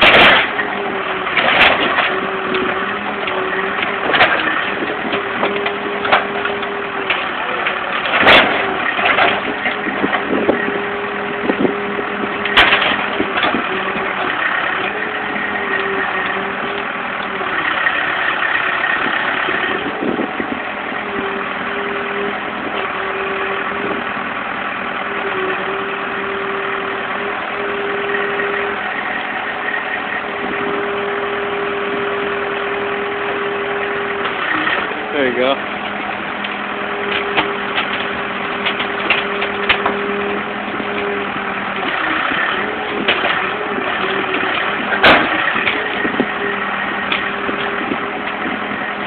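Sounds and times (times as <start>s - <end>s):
backhoe engine droning: 0.0s - 49.0s
sharp knocks: 43.1s - 46.2s.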